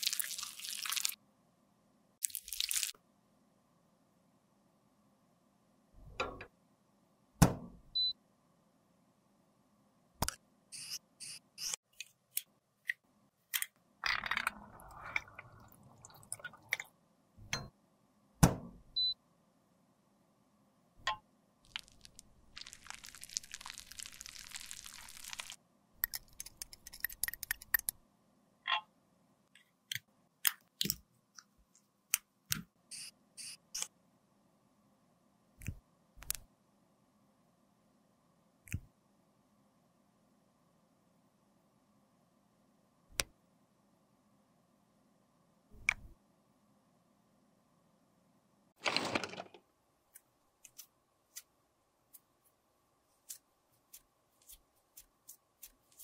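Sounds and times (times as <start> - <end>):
handling small containers: 21.7 - 28.0, 48.8 - 51.5.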